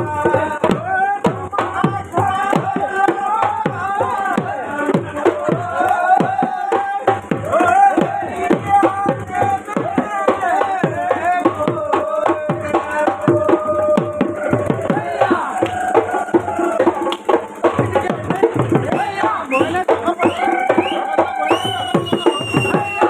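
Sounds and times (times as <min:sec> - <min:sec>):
held melody line: 0:00.0 - 0:23.0.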